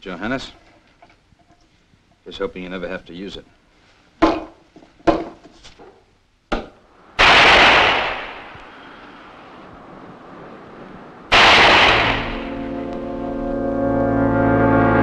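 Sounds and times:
revolver shots with echo: 0:07.2 - 0:08.6, 0:11.3 - 0:12.7.

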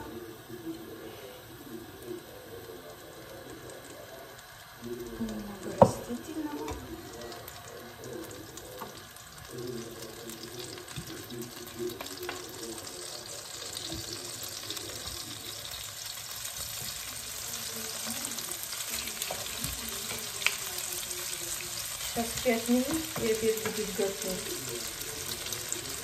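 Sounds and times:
butter sizzling in a frying pan: 0:00.0 - 0:26.0
utensils clicking on a pan: 0:08.5 - 0:26.0.

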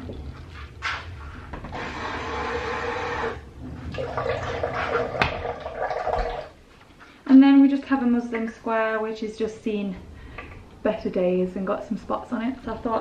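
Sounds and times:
water running from tap into bowl: 0:03.2 - 0:06.6.

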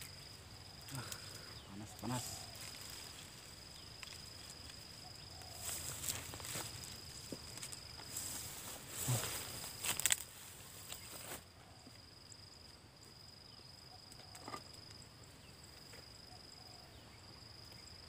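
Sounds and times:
high-pitched insect drone: 0:00.0 - 0:12.7
dry leaves rustling: 0:02.0 - 0:11.3.

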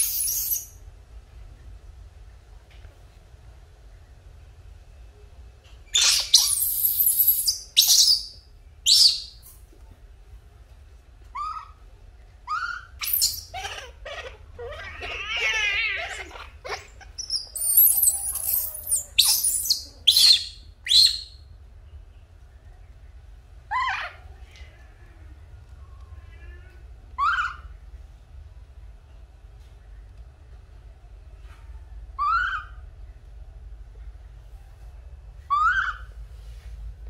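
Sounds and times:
baby monkey crying: 0:00.0 - 0:00.6, 0:06.0 - 0:09.3, 0:11.3 - 0:11.8, 0:12.5 - 0:21.4, 0:23.7 - 0:24.3, 0:26.4 - 0:27.7, 0:32.2 - 0:32.8, 0:35.5 - 0:36.1.

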